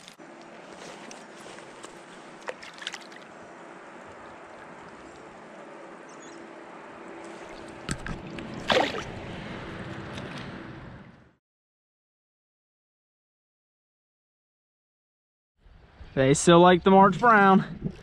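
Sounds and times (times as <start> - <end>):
stream water flowing: 0.0 - 11.2.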